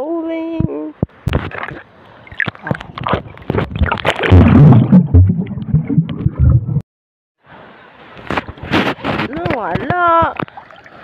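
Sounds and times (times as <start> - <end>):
sea water splashing and gurgling: 1.3 - 6.8, 10.2 - 11.0
low thumps against microphone: 2.7 - 6.8.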